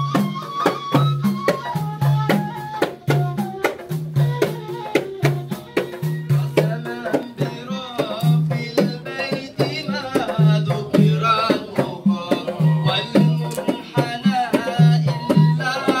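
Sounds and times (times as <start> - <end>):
hand drums beating: 0.0 - 16.0
voices chanting praise songs: 6.3 - 16.0.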